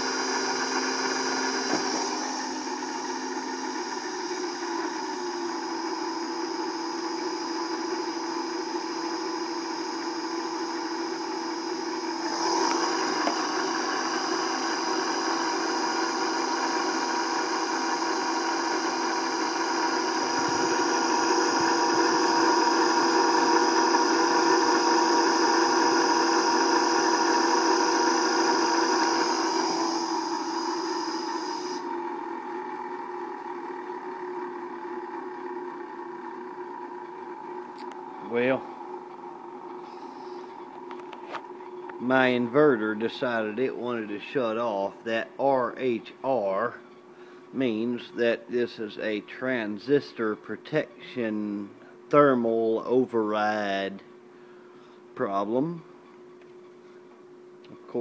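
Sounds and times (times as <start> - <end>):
electric motor whine: 0.0 - 42.6.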